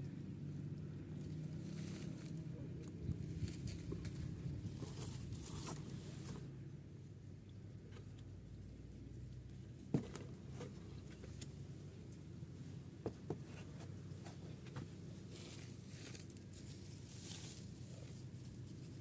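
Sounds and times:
low steady background hum: 0.0s - 19.0s
soft rustle: 1.1s - 6.6s, 9.1s - 19.0s.

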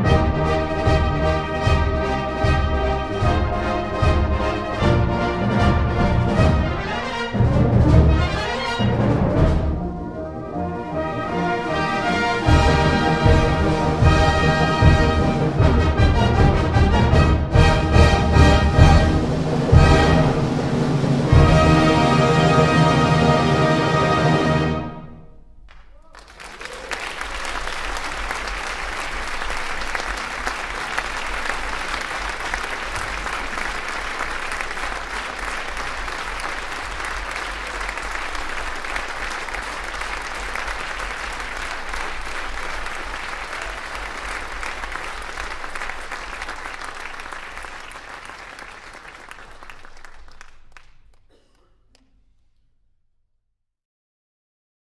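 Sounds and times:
audience applauding: 25.7s - 52.1s.

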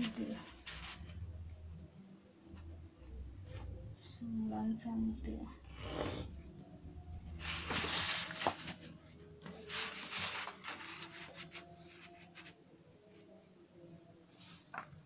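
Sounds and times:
pencil and ruler rubbing on paper: 9.6s - 12.6s.

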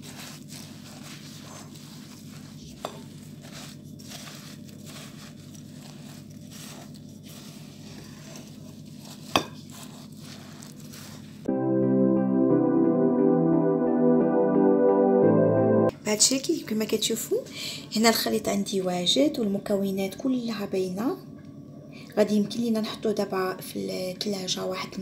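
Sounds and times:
cookie dough stirred in glass bowl: 0.0s - 11.5s
music: 11.5s - 15.9s.

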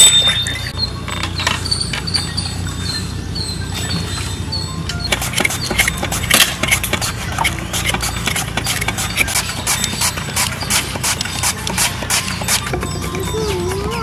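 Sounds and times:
peeler scraping potato skin: 5.1s - 12.8s.

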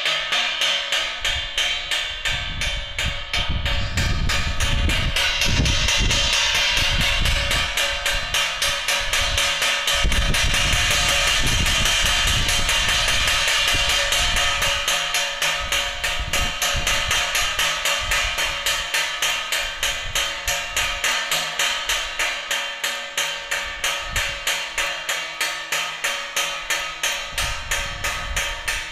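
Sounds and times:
wind rumble on microphone: 1.1s - 18.9s, 19.5s - 21.0s, 23.6s - 24.5s, 27.2s - 28.9s.

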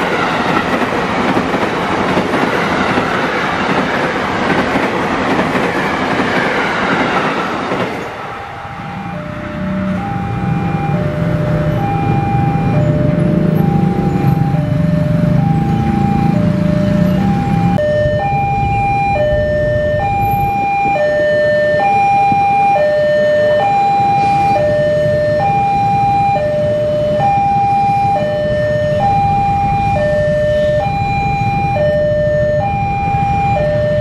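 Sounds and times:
train rumble: 0.0s - 22.5s.

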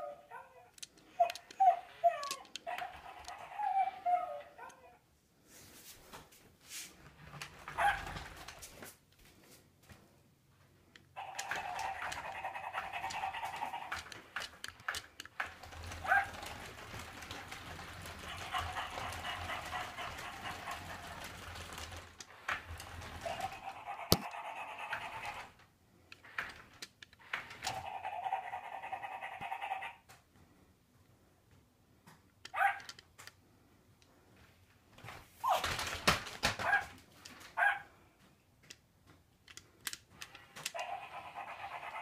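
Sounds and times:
electronic dog sounds: 0.0s - 5.0s, 11.2s - 14.2s, 15.6s - 22.0s, 22.8s - 25.6s, 27.6s - 30.1s, 40.7s - 42.0s
toy motor whirring: 0.8s - 4.8s, 11.2s - 25.6s, 26.2s - 30.0s, 39.5s - 42.0s.

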